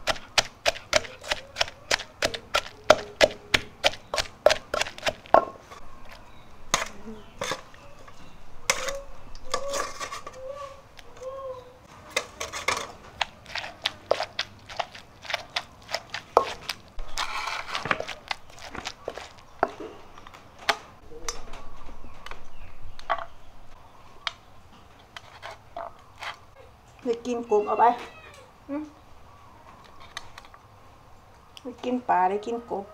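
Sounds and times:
pestle pounding in a clay mortar: 0.0 - 5.5, 12.4 - 19.8.

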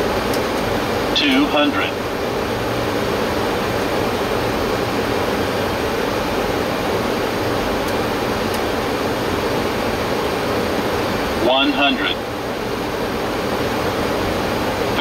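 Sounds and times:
steady rushing noise in cockpit: 0.0 - 15.0.

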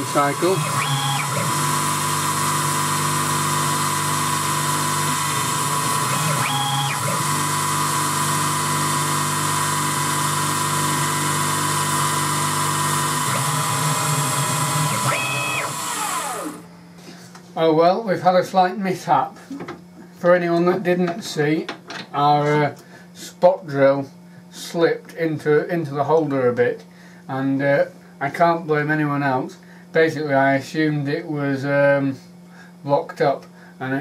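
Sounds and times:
milling machine spindle whine: 0.0 - 16.7.

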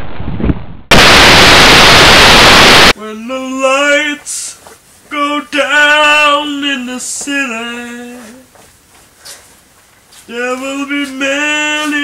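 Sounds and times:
loud static hiss: 0.9 - 3.0.

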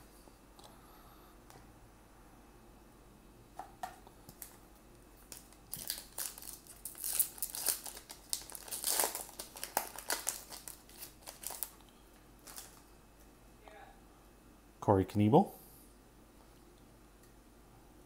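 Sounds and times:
foil wrapper crinkling and tearing: 5.3 - 11.8, 12.4 - 12.8.

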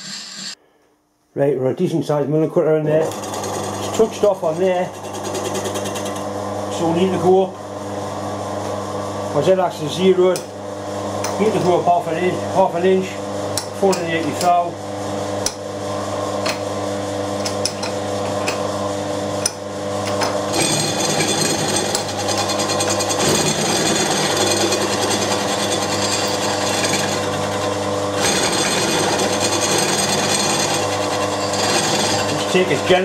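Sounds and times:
harsh high cutting noise: 0.0 - 0.6, 20.5 - 33.0
milling machine motor hum: 3.0 - 33.0.

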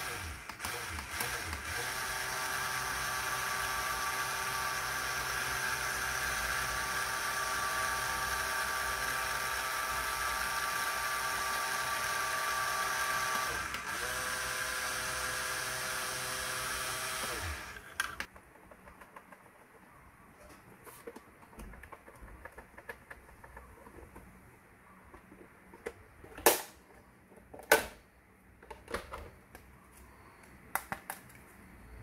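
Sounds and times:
small electric gear motor whining: 0.0 - 18.3.

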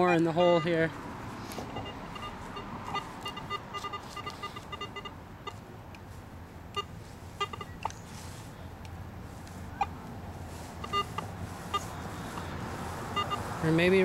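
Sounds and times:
metal detector beeping: 0.0 - 0.9, 1.7 - 5.6, 6.7 - 8.0, 10.7 - 12.5, 13.1 - 14.0.

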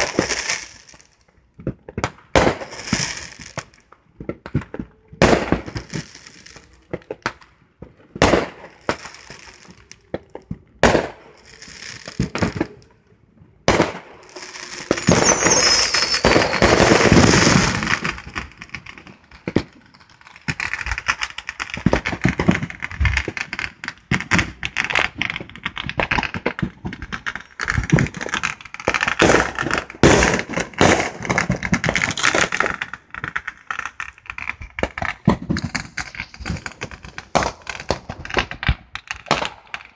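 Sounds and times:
firework crackling and popping: 0.0 - 39.9
firework bangs: 1.9 - 7.2, 7.9 - 12.8, 13.6 - 19.7, 24.1 - 39.9
falling firework whistle: 13.8 - 18.1.

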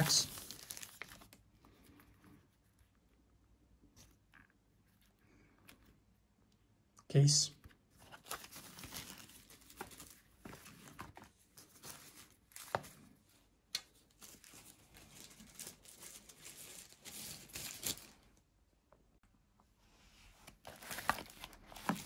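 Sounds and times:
paper and plastic packaging rustling: 0.0 - 2.5, 7.8 - 13.2, 13.9 - 18.4, 20.4 - 22.0.

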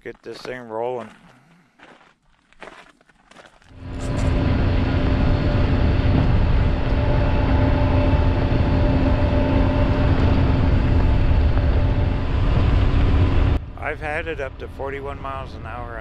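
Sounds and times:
wind: 0.0 - 16.0
vehicle engine humming: 3.7 - 16.0.

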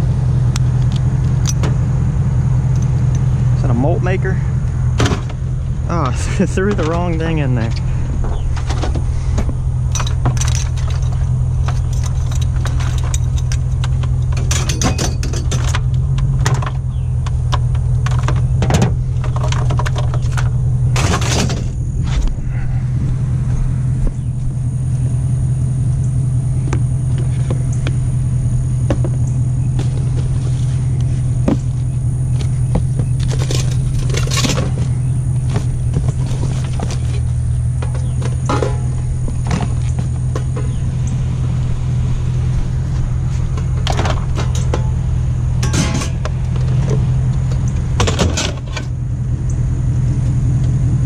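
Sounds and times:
pickup truck engine running: 0.0 - 51.0
scrap metal clanking and scraping: 6.0 - 22.4, 29.0 - 40.9, 42.8 - 49.0.

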